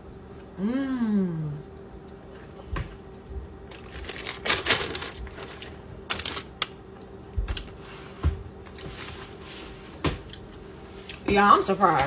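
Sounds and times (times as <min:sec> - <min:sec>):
paper bag crinkling: 0:03.7 - 0:06.7.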